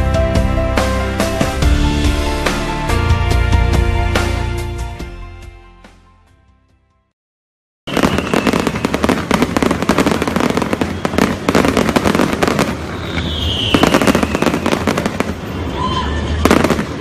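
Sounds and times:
falling firework whistle: 7.9s - 17.0s
fireworks crackling and banging: 7.9s - 17.0s.

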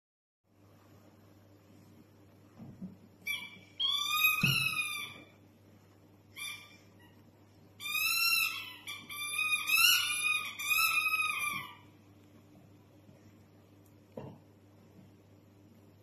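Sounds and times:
puppy whining: 6.3s - 12.0s.

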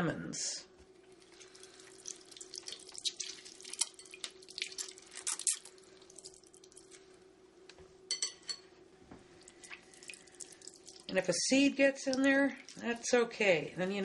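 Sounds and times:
faint steady hum: 0.0s - 14.0s
juice dripping: 0.9s - 7.2s, 9.4s - 13.3s
wet crackly lemon squeezing: 1.0s - 7.2s, 9.4s - 11.1s, 12.0s - 13.1s.

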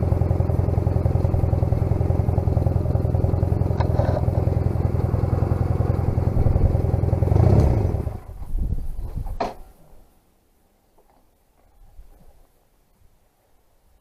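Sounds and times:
motorcycle engine idling: 0.0s - 8.3s.

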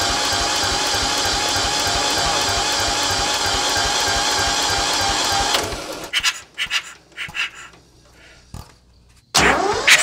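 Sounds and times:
diesel engine cranking: 0.0s - 8.2s, 9.3s - 10.0s.

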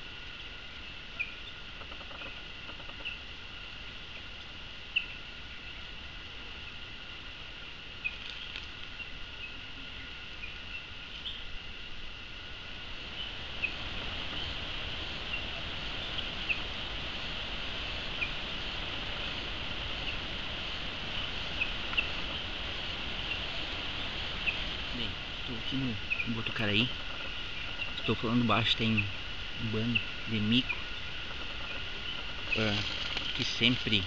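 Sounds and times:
high insect buzzing: 10.8s - 34.0s.

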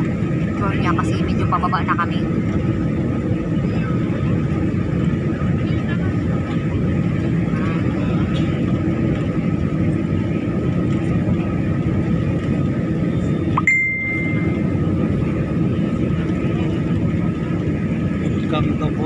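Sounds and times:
airliner cabin engine noise: 0.0s - 19.0s
two-note electronic chime: 13.6s - 14.6s.

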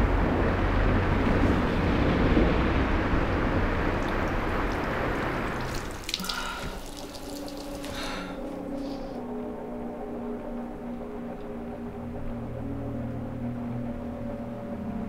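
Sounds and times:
running water: 3.9s - 9.1s.

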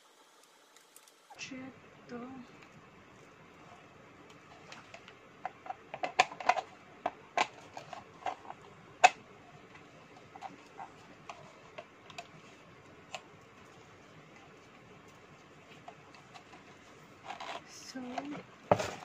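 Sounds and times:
hard plastic parts clicking: 4.6s - 9.2s.

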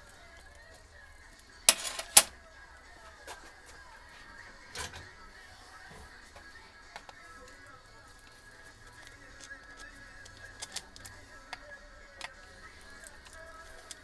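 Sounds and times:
metal clicks: 1.7s - 2.3s.

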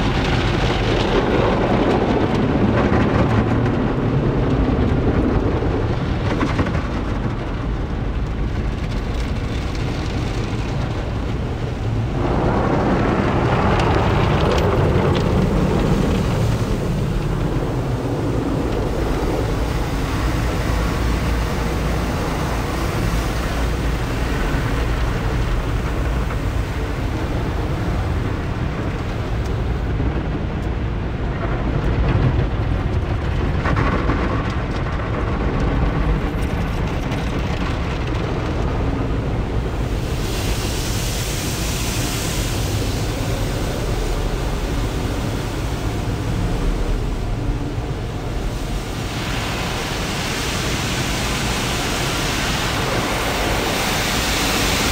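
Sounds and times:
heavy low rumble: 0.0s - 54.9s
water spray on windshield: 8.5s - 30.8s, 37.4s - 54.9s.

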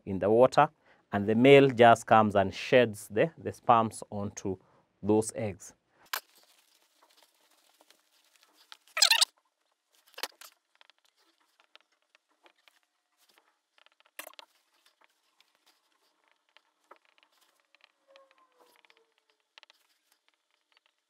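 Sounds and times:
sharp marker scraping: 8.6s - 9.3s, 14.2s - 20.8s.

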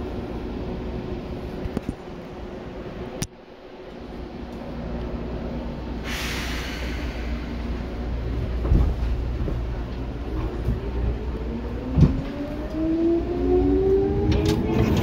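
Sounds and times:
electric train rumble: 0.0s - 15.0s
traction motor whine rising: 11.2s - 15.0s.

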